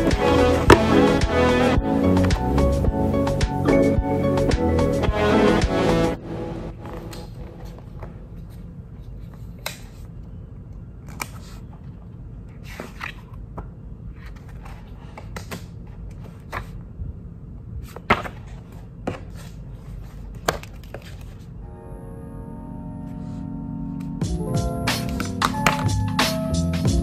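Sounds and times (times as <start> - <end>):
book pages turning: 6.8 - 10.2, 11.0 - 13.4, 14.1 - 16.8, 17.8 - 21.6.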